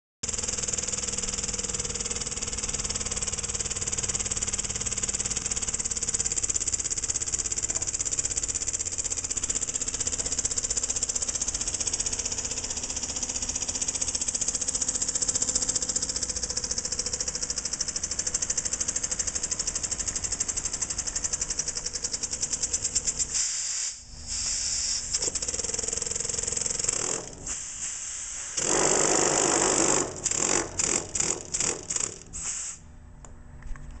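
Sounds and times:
model steam engine exhaust hiss: 23.2 - 25.2, 27.4 - 28.6, 32.1 - 32.9.

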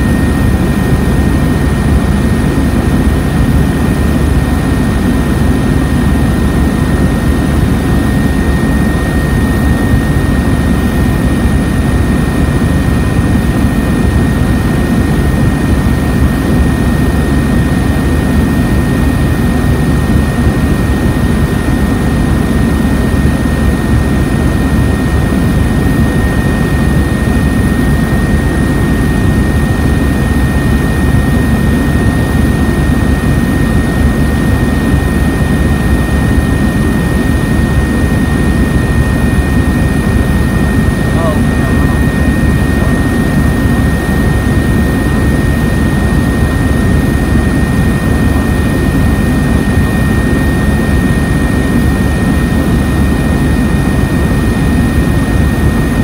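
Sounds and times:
aircraft cabin rumble: 0.0 - 56.0
thin high whine: 36.7 - 52.8.

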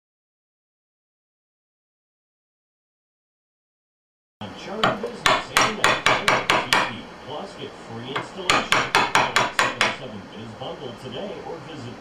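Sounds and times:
mallet striking wood chisel: 4.8 - 6.9, 8.2 - 10.0.

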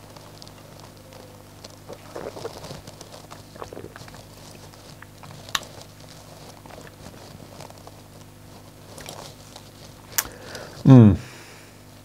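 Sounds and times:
low steady hum: 0.0 - 12.0
lip smacks and mouth clicks: 1.8 - 5.8, 8.9 - 9.2, 10.1 - 10.4.

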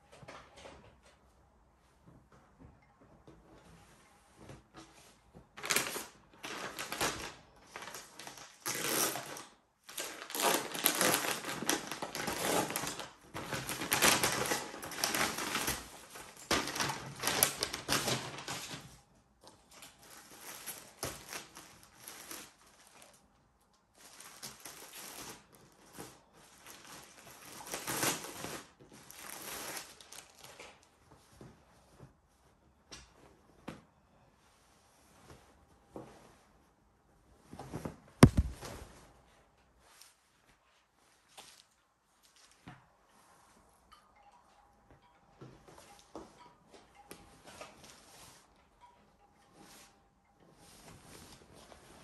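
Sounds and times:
plastic packaging rustling: 5.6 - 19.0, 19.8 - 23.2, 23.9 - 30.9, 37.6 - 39.0.

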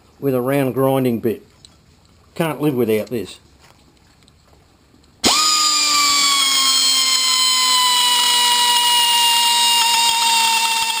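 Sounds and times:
die grinder high-pitched whine: 5.2 - 11.0.

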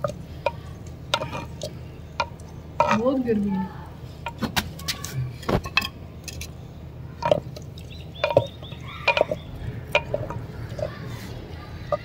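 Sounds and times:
ladle scraping clay pot: 0.0 - 3.4, 7.2 - 12.0.

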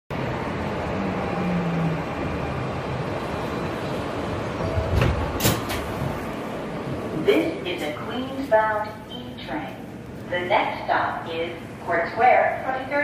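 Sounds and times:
subway car hum: 0.1 - 13.0.

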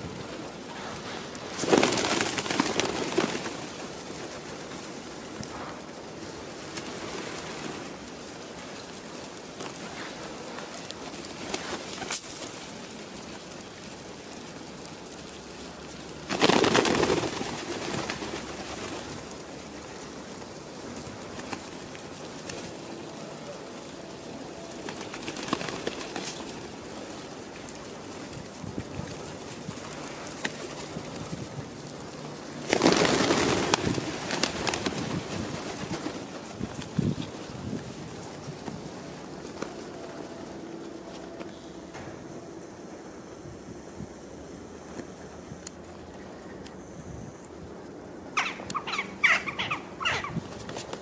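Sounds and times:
wings flapping: 0.0 - 42.5, 48.4 - 51.0
pigeons cooing: 48.3 - 51.0.

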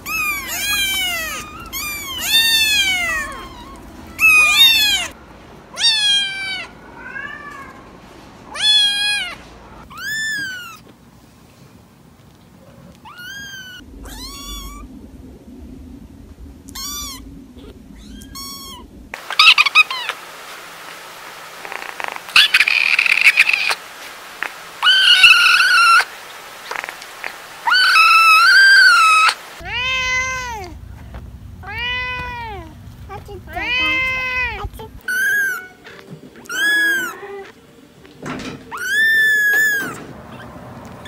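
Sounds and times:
adult cat meowing loudly: 0.0 - 5.2, 5.8 - 7.8, 24.8 - 26.0, 27.6 - 30.7, 31.6 - 32.7, 33.5 - 37.5, 38.7 - 40.0
lower cat meow: 0.0 - 5.2, 5.8 - 7.8, 13.0 - 14.9, 33.6 - 37.5, 38.7 - 40.5
kittens mewing: 0.0 - 7.8, 8.5 - 10.9, 12.7 - 15.1, 16.6 - 20.2, 21.6 - 23.8, 24.4 - 26.1, 26.7 - 32.8, 33.4 - 37.7, 38.3 - 41.0.

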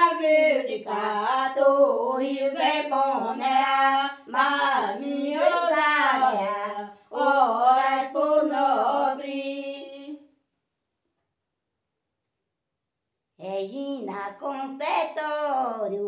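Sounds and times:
woman singing a hymn: 0.0 - 10.2, 13.4 - 16.0.

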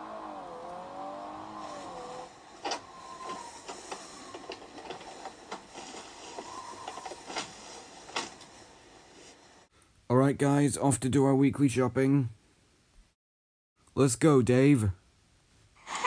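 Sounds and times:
car engine running: 0.0 - 5.7
sharp clicks and clunks: 2.6 - 8.5.

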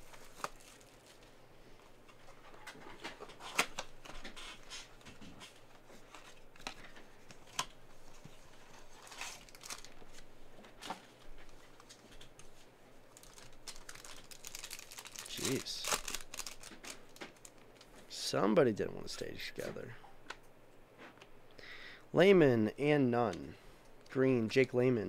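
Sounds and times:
foil packs crinkling: 0.0 - 1.3, 8.6 - 10.3, 13.1 - 18.0.

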